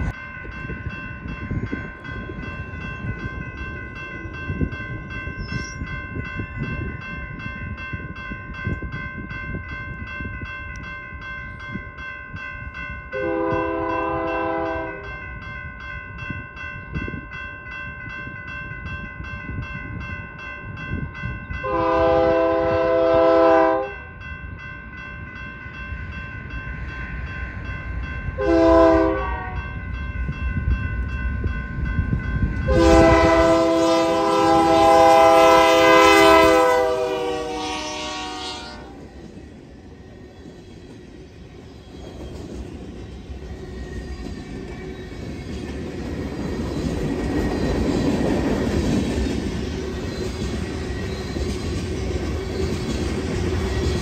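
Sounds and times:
railroad crossing bell ringing: 0:00.0 - 0:54.0
train air horn blasts: 0:13.2 - 0:15.2, 0:21.6 - 0:24.1, 0:28.4 - 0:29.7, 0:32.7 - 0:39.0.

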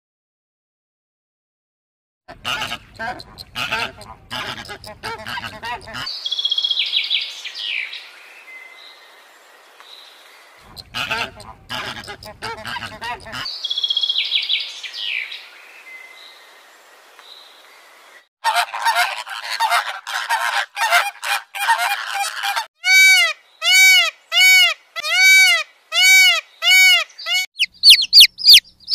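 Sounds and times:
flamingos calling: 0:02.3 - 0:06.1, 0:10.6 - 0:13.5, 0:18.4 - 0:28.9
loud goose-like honks: 0:02.3 - 0:06.1, 0:10.7 - 0:13.5, 0:18.4 - 0:27.5
chicks cheeping: 0:02.3 - 0:06.8, 0:10.6 - 0:13.4, 0:26.9 - 0:28.9.

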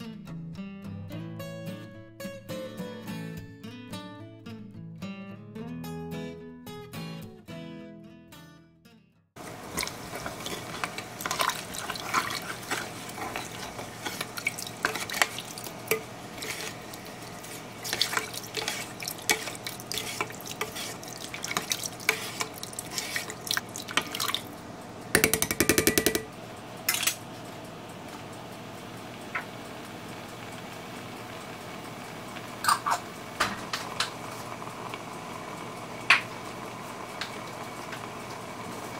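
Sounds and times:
spoon stirring broth: 0:09.4 - 0:24.5, 0:25.2 - 0:26.3
steady low hum: 0:09.4 - 0:38.9
spoon knocking against pot: 0:25.2 - 0:26.3
fast rattle of clicks: 0:25.2 - 0:26.4.

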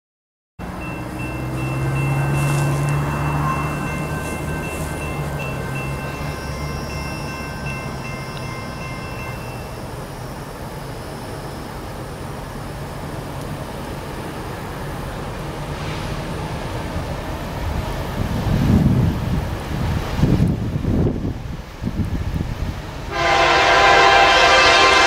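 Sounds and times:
diesel locomotives rumbling: 0:00.6 - 0:25.0
distant locomotive air horn: 0:00.7 - 0:09.7, 0:23.1 - 0:25.0
wind buffeting microphone: 0:16.8 - 0:23.1.

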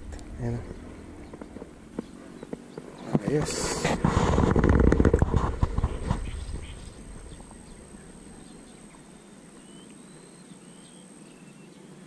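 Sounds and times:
faint high chirps: 0:06.3 - 0:11.7.

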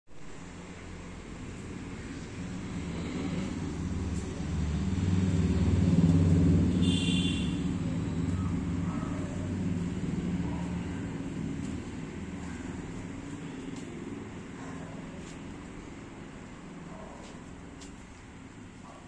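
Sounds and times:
heavy machinery engine running: 0:00.4 - 0:14.5.

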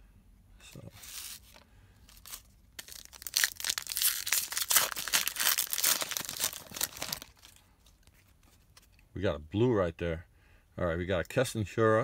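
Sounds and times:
foil wrapper tearing and crinkling: 0:01.0 - 0:07.6.

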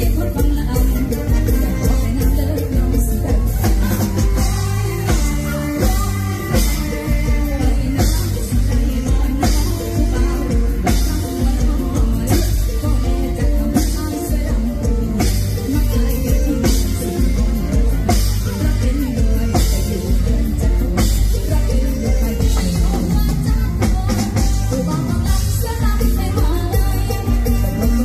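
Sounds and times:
live band playing: 0:00.0 - 0:28.0
woman singing into microphone: 0:00.0 - 0:28.0.

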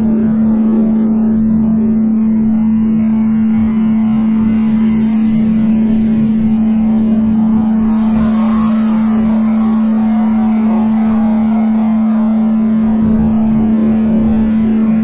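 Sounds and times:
steady drone tone: 0:00.0 - 0:15.0
rushing swirling noise: 0:04.3 - 0:13.9.

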